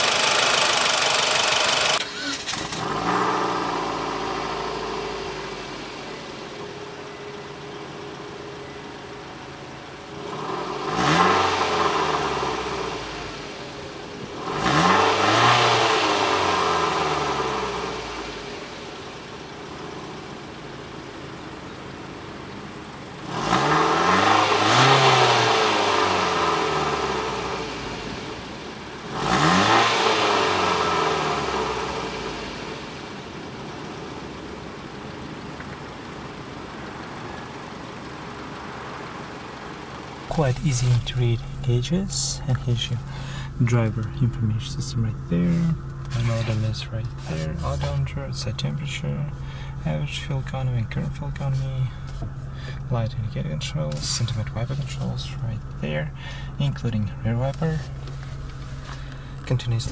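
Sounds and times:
car engine idling and revving: 0.0s - 59.9s.

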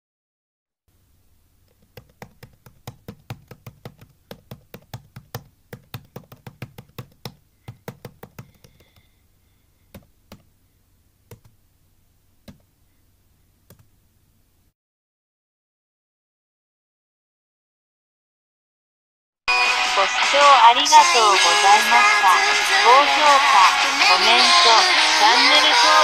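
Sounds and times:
on-screen keyboard tapping: 1.6s - 9.1s, 9.9s - 10.5s, 11.3s - 11.6s, 12.4s - 12.7s, 13.6s - 13.9s.

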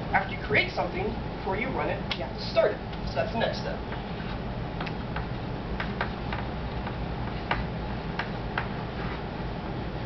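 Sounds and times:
low room hum: 0.0s - 10.0s
chalk scratching on chalkboard: 7.2s - 9.3s.

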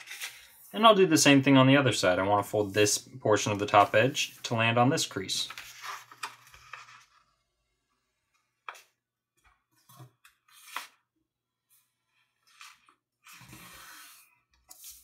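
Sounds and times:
paper rustling and crinkling: 5.4s - 7.4s.

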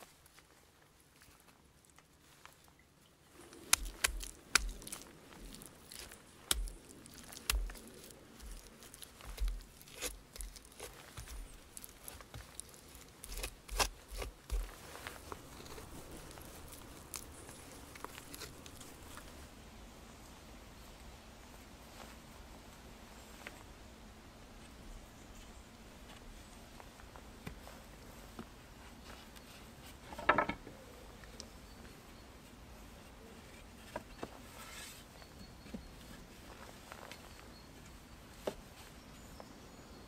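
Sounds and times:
shovel digging wet soil: 3.4s - 18.6s.

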